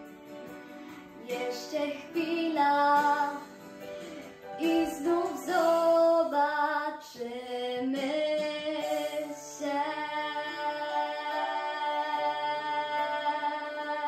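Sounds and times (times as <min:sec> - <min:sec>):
pop backing track: 0:00.0 - 0:14.0
girl singing long held notes: 0:04.6 - 0:14.0.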